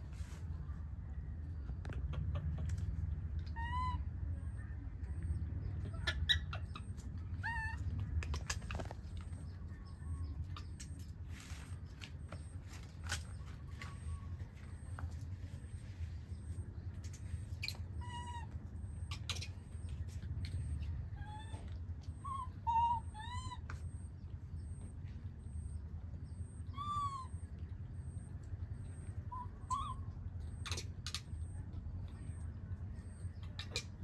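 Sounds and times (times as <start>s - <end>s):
steady low rumble: 0.0s - 34.0s
baby monkey high-pitched calls: 3.4s - 4.6s, 5.3s - 11.1s, 17.4s - 19.9s, 20.6s - 24.8s, 26.4s - 28.3s, 29.1s - 31.6s.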